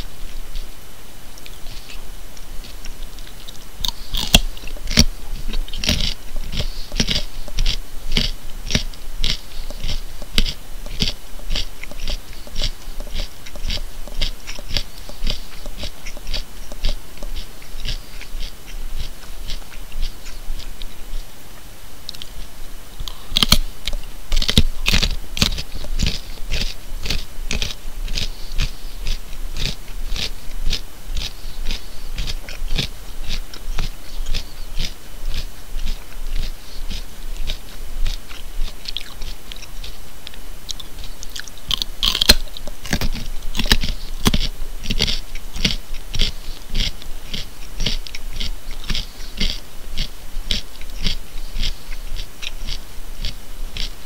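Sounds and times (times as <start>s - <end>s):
person chewing a carrot: 1.3s - 21.3s, 22.1s - 54.0s
carrot snapping: 3.2s - 19.6s, 23.0s - 32.9s, 40.3s - 48.2s.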